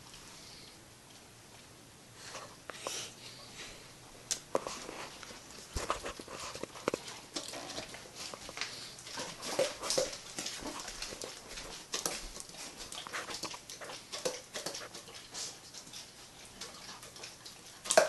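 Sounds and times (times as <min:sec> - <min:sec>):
dog making clicking noises: 0:05.9 - 0:18.0.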